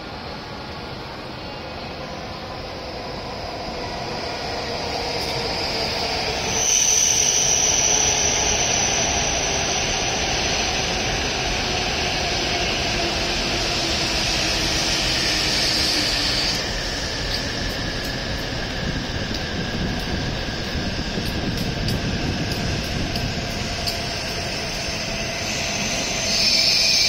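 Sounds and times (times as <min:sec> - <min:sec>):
train running noise: 0:00.0 - 0:27.0
high hiss: 0:14.0 - 0:27.0.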